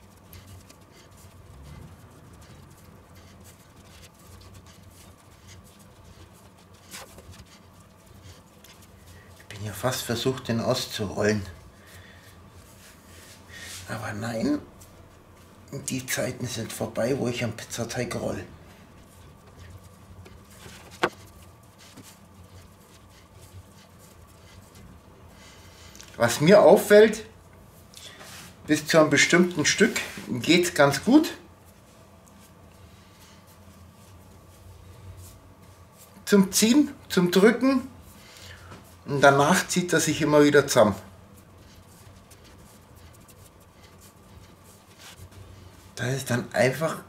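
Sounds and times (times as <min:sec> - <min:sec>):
fingers patting dough: 0:00.0 - 0:09.5, 0:18.9 - 0:25.1, 0:41.2 - 0:45.5
soft patting and rubbing of dough: 0:00.0 - 0:47.0.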